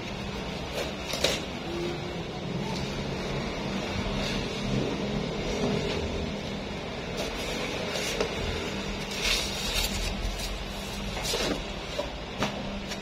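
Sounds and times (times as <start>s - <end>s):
cardboard box scraping and rustling: 7.1s - 12.2s.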